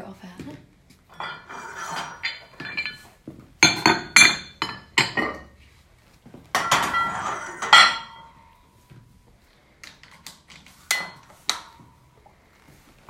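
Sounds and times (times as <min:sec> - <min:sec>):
weight plates clinking on barbell: 0:01.1 - 0:05.6, 0:06.5 - 0:08.7, 0:10.9 - 0:12.1.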